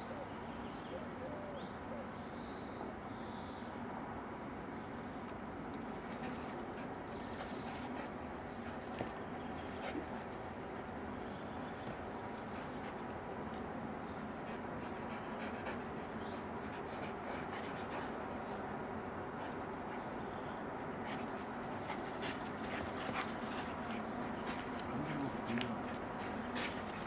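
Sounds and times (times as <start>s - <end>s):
dogs vocalising: 21.1s - 27.0s.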